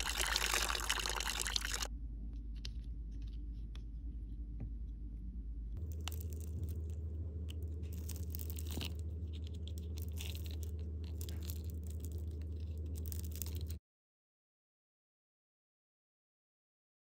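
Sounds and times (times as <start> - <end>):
steady low hum: 0.0 - 13.8
gel shell crackling as torn: 5.8 - 13.8.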